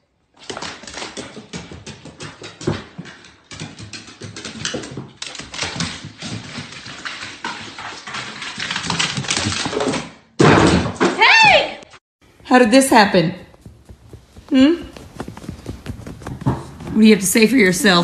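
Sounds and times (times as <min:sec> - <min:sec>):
dog claws clicking on wooden stairs: 0:00.4 - 0:10.1.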